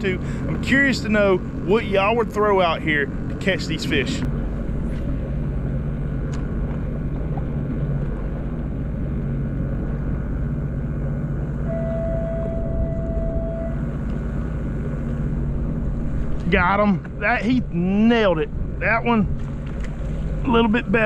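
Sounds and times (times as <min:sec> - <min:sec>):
low mechanical hum: 0:00.0 - 0:21.0
clear single tone: 0:11.6 - 0:14.1.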